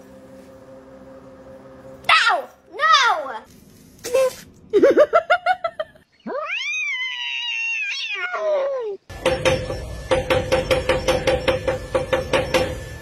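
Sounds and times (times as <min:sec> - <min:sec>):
cat meowing: 0:06.2 - 0:09.0
cat yowling: 0:06.2 - 0:09.0
knocks: 0:09.1 - 0:12.8.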